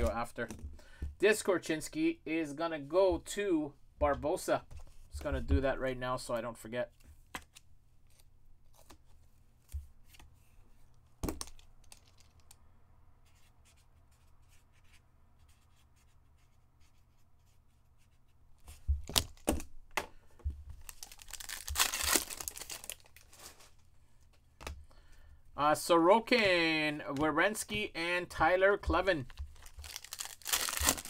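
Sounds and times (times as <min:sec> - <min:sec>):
card pack wrapper tearing: 0:20.8 - 0:23.5, 0:29.2 - 0:31.0.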